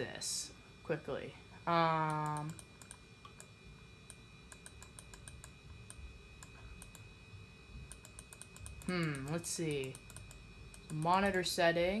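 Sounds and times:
computer mouse clicking: 2.1s - 3.5s, 4.1s - 7.1s, 7.9s - 11.4s.

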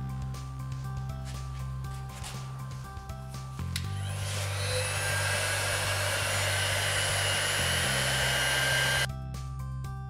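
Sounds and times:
heat gun blowing: 3.8s - 9.1s.

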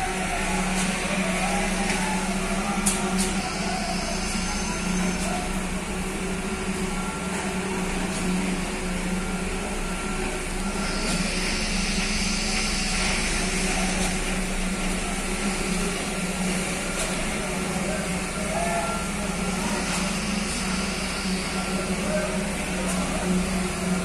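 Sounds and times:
machinery engines droning: 0.0s - 24.0s
thin constant whine: 0.0s - 24.0s.

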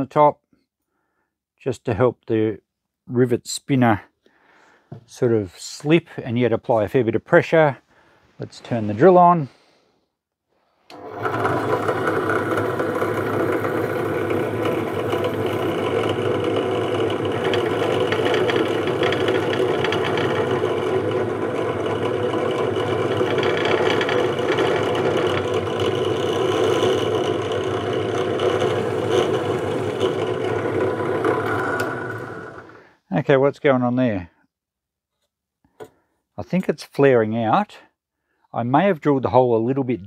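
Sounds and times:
drill press motor humming: 10.9s - 32.9s.

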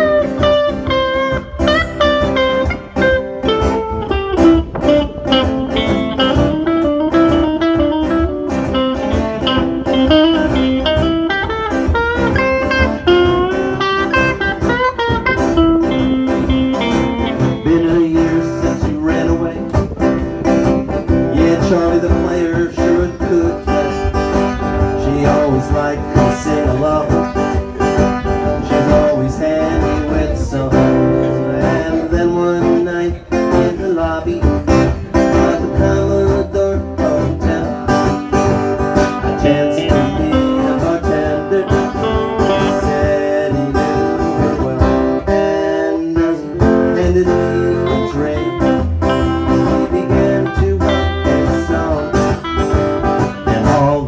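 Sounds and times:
band playing country-blues: 0.0s - 54.0s.

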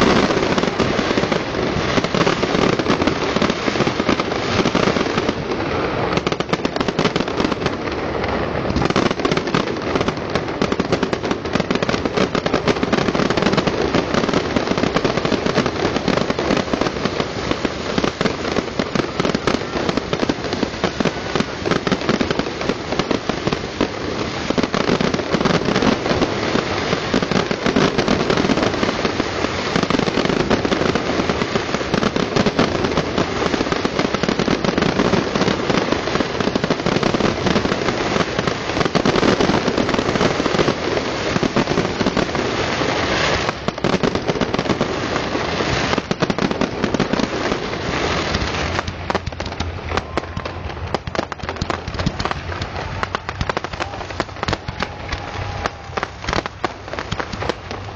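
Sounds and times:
fireworks bursting and crackling: 0.0s - 57.9s.

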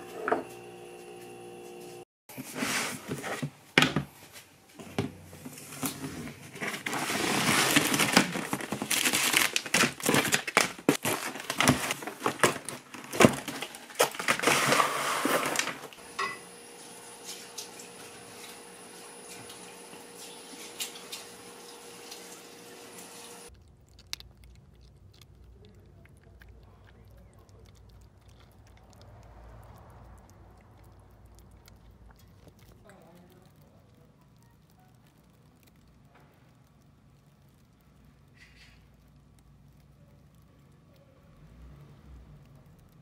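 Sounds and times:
cardboard crinkling and rubbing: 5.3s - 16.0s.

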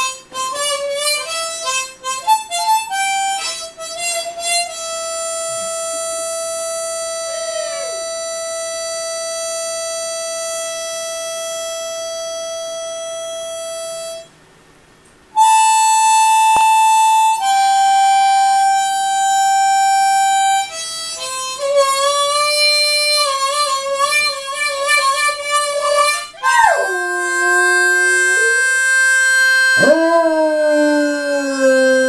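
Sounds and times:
harmonica playing: 0.0s - 14.3s, 15.4s - 32.0s
puppy howling: 7.3s - 8.0s, 26.4s - 29.0s, 29.7s - 32.0s.

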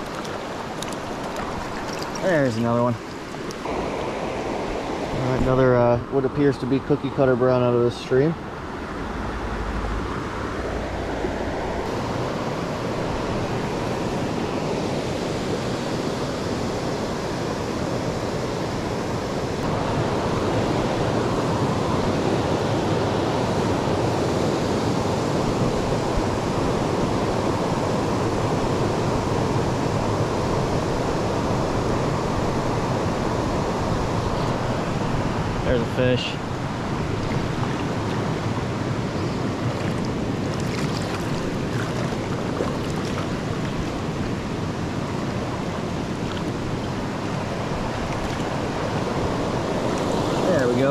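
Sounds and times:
stream water rushing over stones: 0.0s - 5.9s, 18.0s - 50.9s.

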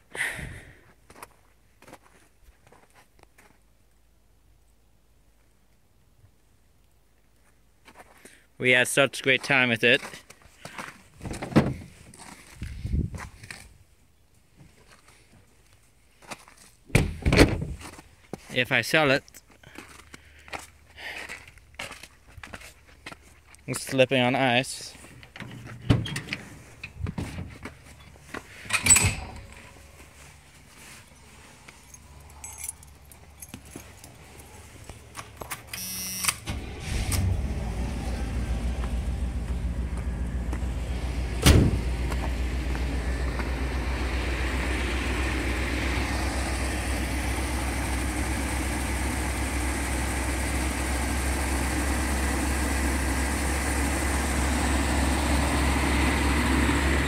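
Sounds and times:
footsteps crunching on icy gravel: 0.9s - 3.7s, 9.4s - 13.8s, 14.7s - 16.9s, 17.7s - 24.2s, 29.5s - 32.3s, 38.6s - 41.2s, 41.8s - 43.7s
bus engine starting and idling: 25.2s - 31.4s, 32.0s - 57.0s
keys jingling: 31.1s - 34.6s.

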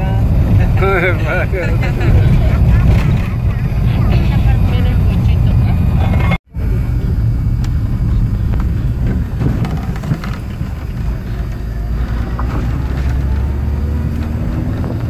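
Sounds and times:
vehicle engine and road rumble: 0.0s - 15.0s.

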